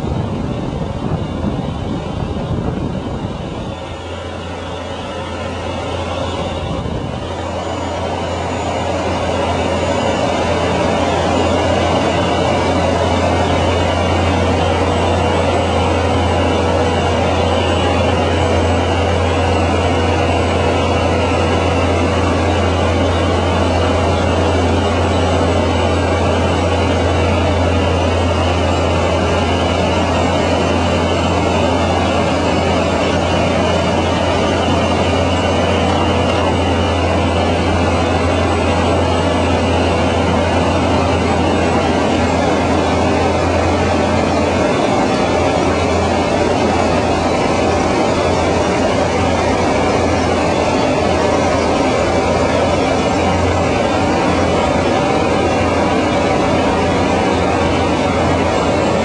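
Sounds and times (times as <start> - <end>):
small plane engine droning: 0.0 - 59.0.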